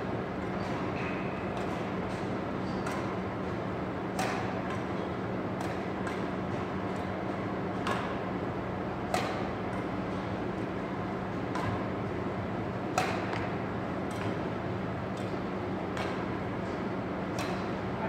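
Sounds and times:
steady low hum: 0.0 - 18.0
rackets hitting shuttlecock: 0.5 - 3.2, 4.1 - 8.2, 9.0 - 10.5, 11.4 - 12.0, 12.9 - 14.4, 15.1 - 17.8.

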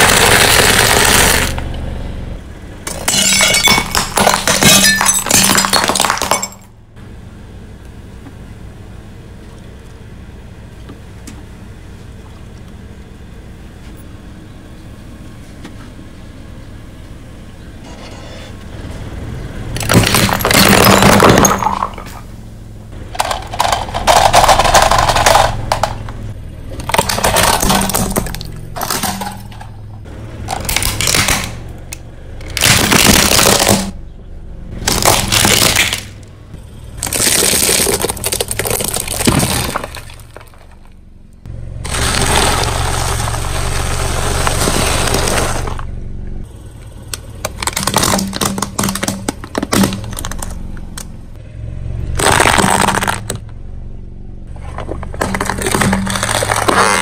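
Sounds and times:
tyre crushing plastic toys: 0.0 - 1.6, 2.9 - 6.7, 19.8 - 22.2, 23.0 - 29.7, 30.5 - 31.6, 32.4 - 34.0, 34.8 - 36.2, 37.0 - 40.9, 41.9 - 45.8, 47.4 - 51.1, 52.2 - 53.5, 54.6 - 57.0
low steady hum: 0.0 - 57.0.

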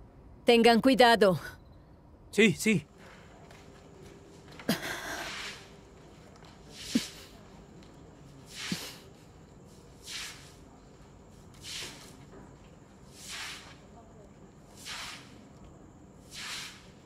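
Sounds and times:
broom sweeping wet pavement: 4.4 - 7.6, 8.2 - 15.6, 16.2 - 17.0.

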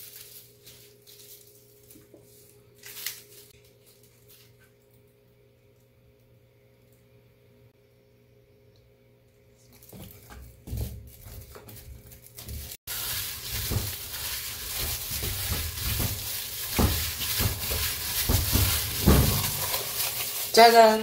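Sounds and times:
plastic glove rustling: 0.0 - 4.9, 9.6 - 21.0
spoon stirring in steel bowl: 12.9 - 20.9
dough thumping against steel: 13.5 - 19.8.

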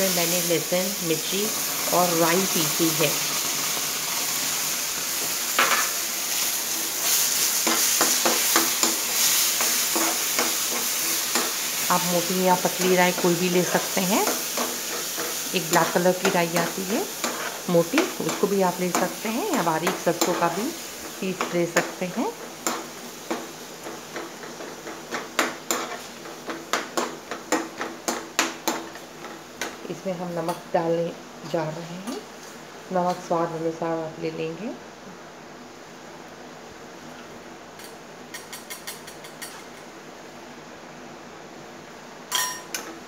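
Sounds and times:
food sizzling in oil: 0.0 - 34.7, 42.0 - 43.0
spoon scraping and knocking pan: 5.2 - 6.4, 7.0 - 29.8.

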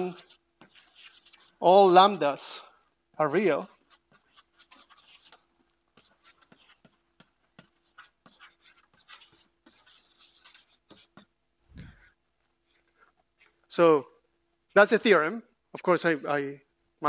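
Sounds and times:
chalk scratching on blackboard: 0.0 - 1.6, 3.3 - 11.4.

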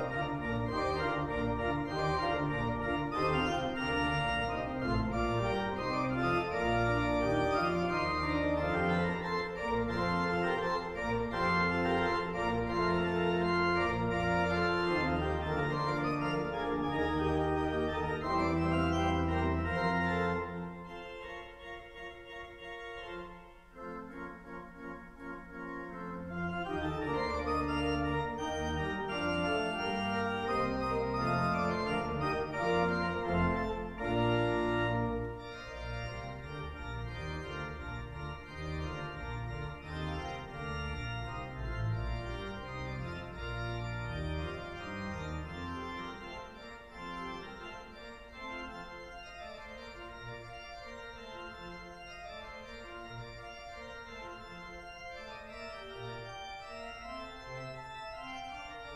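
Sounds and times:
pipe organ playing sustained chords: 0.0 - 58.9.

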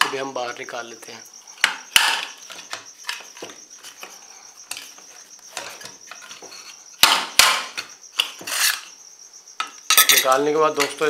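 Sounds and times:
sharp knocks: 7.0 - 8.5.

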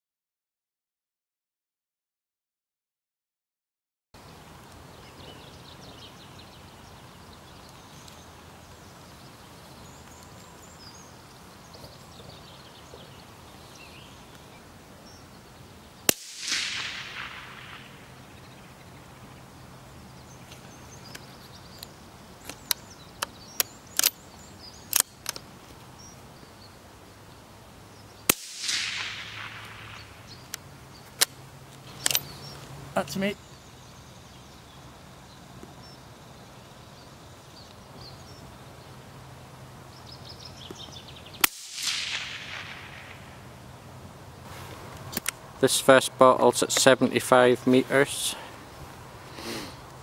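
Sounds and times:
rifle shots: 16.1 - 18.6, 28.3 - 30.5, 41.4 - 43.6
rifle bolt clicks: 24.9 - 25.4, 32.0 - 32.3.

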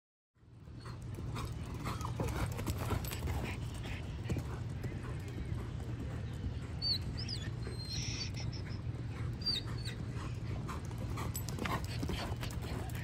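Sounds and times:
low outdoor rumble: 0.4 - 13.0
high squeaky calls: 6.8 - 10.0.

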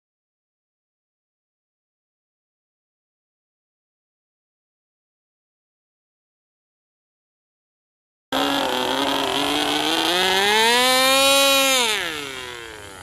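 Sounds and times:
model plane engine buzzing whine: 8.4 - 13.0.

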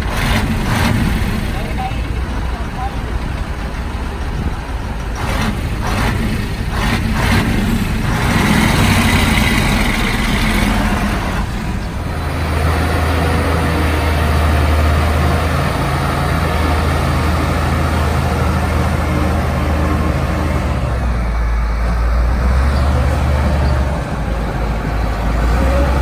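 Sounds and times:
diesel truck engine running: 0.0 - 26.0.

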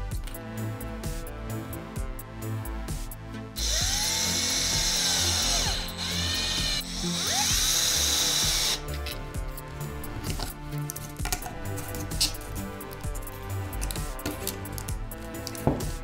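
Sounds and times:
cordless drill driving screw: 3.6 - 9.2.

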